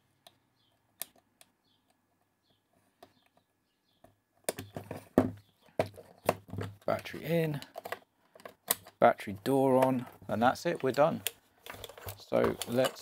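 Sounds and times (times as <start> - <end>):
small plastic clicks: 0.2 - 4.8, 7.5 - 9.0
plastic knocks and clatter: 4.0 - 9.0, 9.7 - 13.0.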